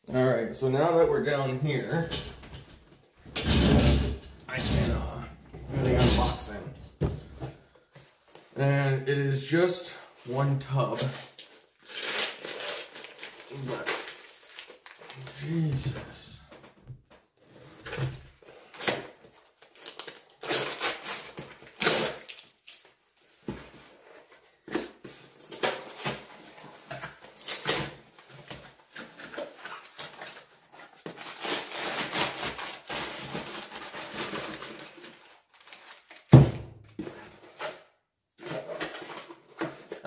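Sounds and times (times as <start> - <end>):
packing paper rustling: 11.0 - 16.0, 18.6 - 22.9, 25.3 - 36.4.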